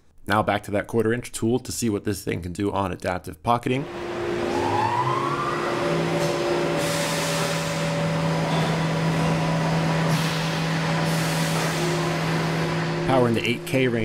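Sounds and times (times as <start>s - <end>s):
mill spindle cutting metal: 3.9s - 14.0s.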